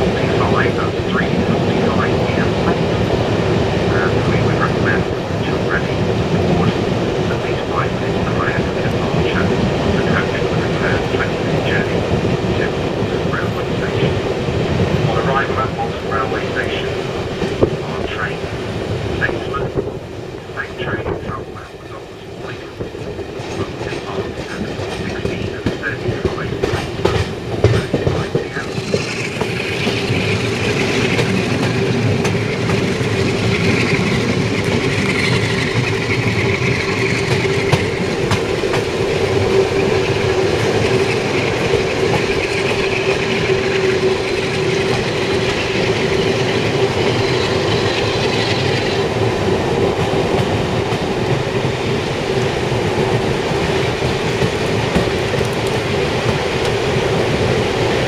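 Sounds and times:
train carriage rolling: 0.0s - 58.0s.

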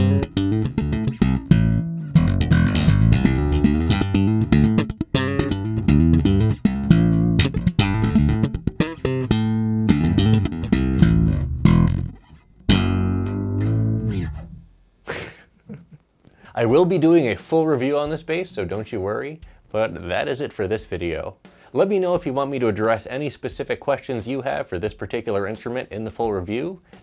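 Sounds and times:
electric bass plucked notes: 0.0s - 14.9s.

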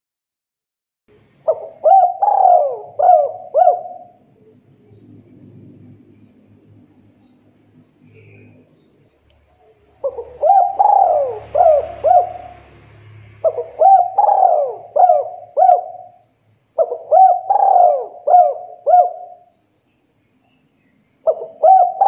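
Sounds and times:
dove cooing: 1.4s - 6.4s, 9.6s - 19.5s, 21.2s - 22.0s.

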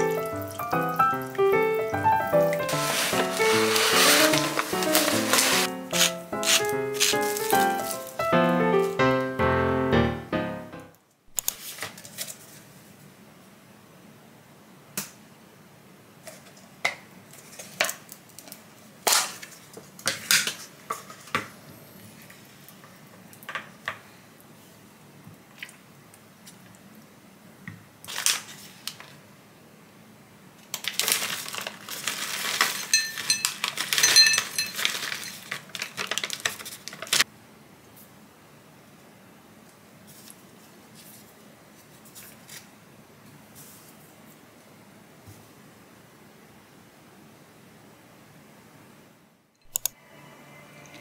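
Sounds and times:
dishes clinking: 32.9s - 34.8s.

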